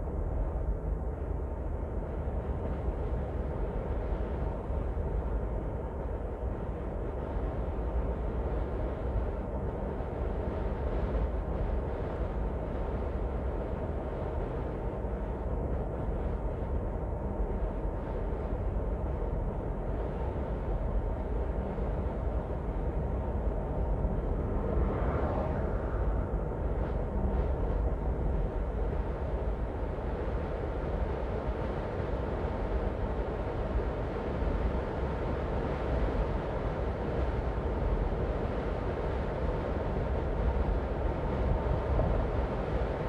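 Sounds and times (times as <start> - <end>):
road and tyre rumble: 22.6 - 30.4.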